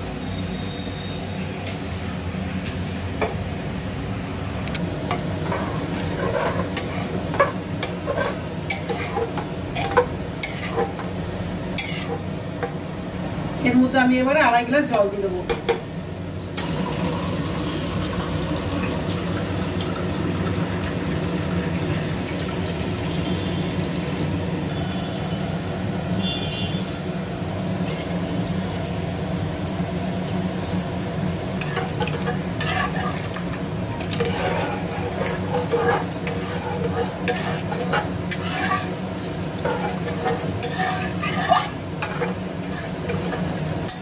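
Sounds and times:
ladle stirring and clicking on pot: 0:04.7 - 0:11.1, 0:31.6 - 0:44.0
water pouring into pot: 0:16.6 - 0:24.3.

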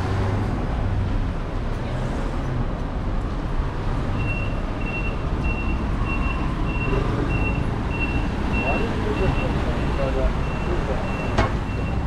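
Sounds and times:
street traffic: 0:00.0 - 0:12.0
reversing alarm beeping: 0:04.2 - 0:12.0.

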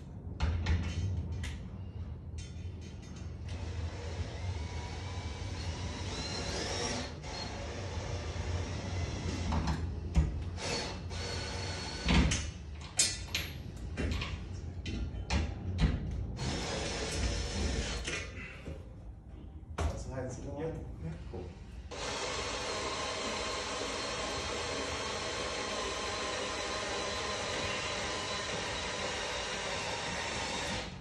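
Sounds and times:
cordless drill driving screws: 0:21.9 - 0:31.0.

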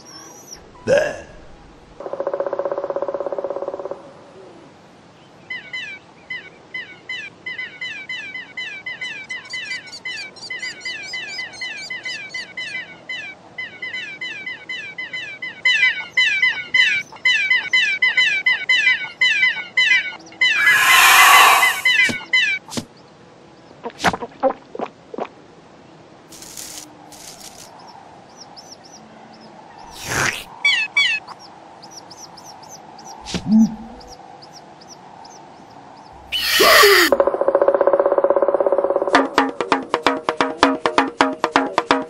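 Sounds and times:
harsh squawk: 0:20.4 - 0:22.2, 0:29.8 - 0:31.3, 0:36.2 - 0:37.2
baby birds chirping: 0:28.3 - 0:33.2, 0:36.1 - 0:37.2.

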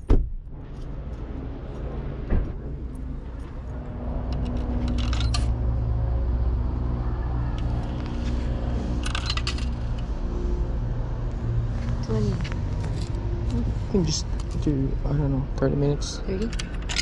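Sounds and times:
low car rumble: 0:00.0 - 0:17.0
coins jingling and clinking: 0:03.3 - 0:05.6, 0:08.9 - 0:09.9, 0:16.4 - 0:17.0.

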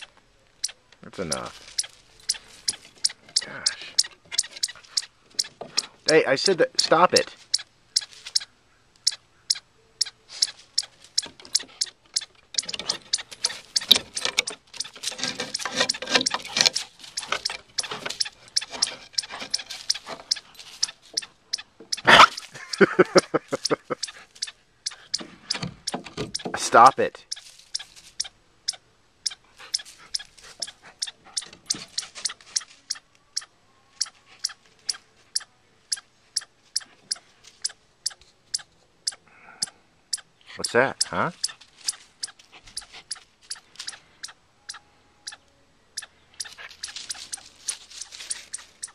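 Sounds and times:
chipmunk chip calls: 0:00.0 - 0:48.9
dog claws scratching wood: 0:01.2 - 0:06.0, 0:10.8 - 0:21.3.

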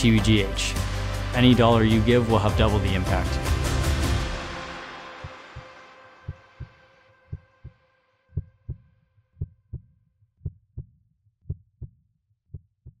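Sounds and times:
music: 0:00.0 - 0:08.7
heartbeat thumps: 0:08.4 - 0:08.8.

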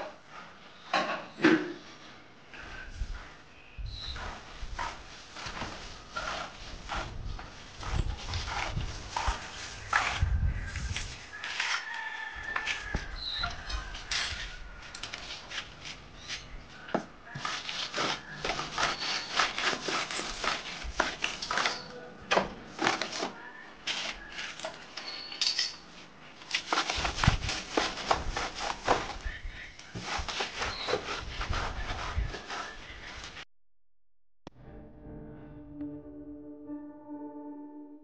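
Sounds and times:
hand tools scraping and knocking: 0:04.1 - 0:33.4.

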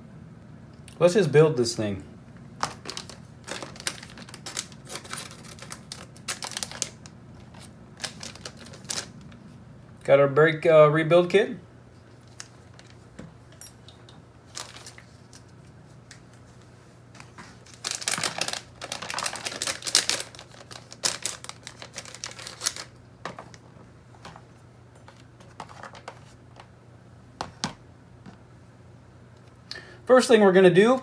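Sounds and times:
plastic bag crinkling: 0:02.6 - 0:09.4, 0:14.5 - 0:15.6, 0:17.5 - 0:24.4.

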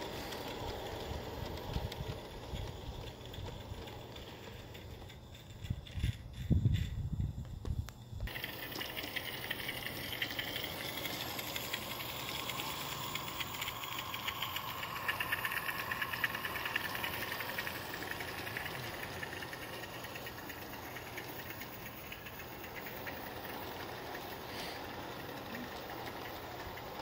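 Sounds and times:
steam locomotive exhaust beats: 0:00.0 - 0:27.0
steam hiss: 0:08.3 - 0:27.0.

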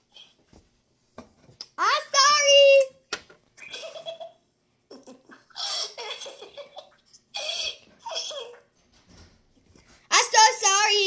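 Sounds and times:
child giggling: 0:04.9 - 0:08.7.

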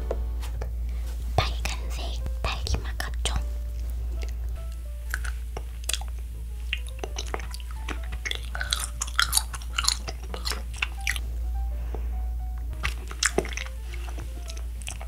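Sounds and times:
chewing mouth clicks and smacks: 0:05.1 - 0:11.2, 0:12.8 - 0:15.0.

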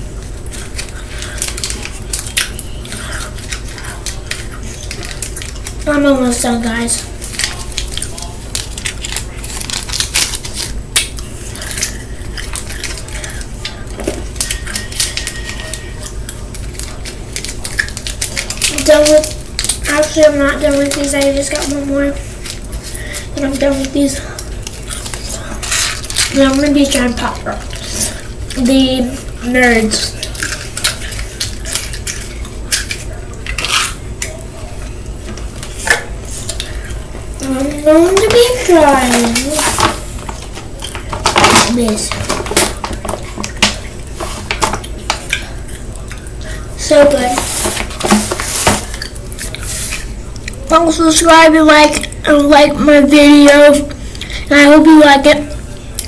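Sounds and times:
plastic wrapper crinkling: 0:00.1 - 0:52.2.

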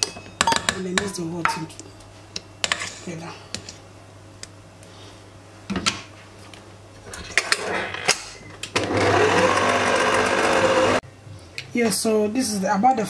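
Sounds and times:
electric mixer motor running: 0:08.8 - 0:11.0.

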